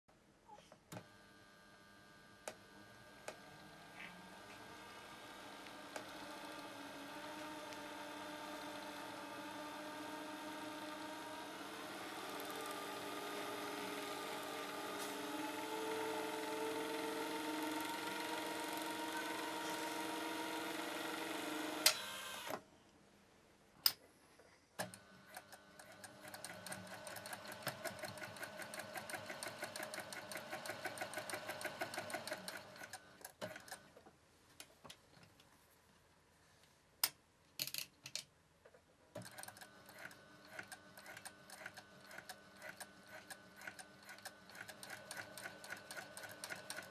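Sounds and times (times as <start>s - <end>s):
sewing machine running: 1.1s - 22.6s, 24.8s - 33.9s, 39.2s - 46.9s
sewing machine clicks: 24.8s - 34.0s, 39.1s - 46.9s.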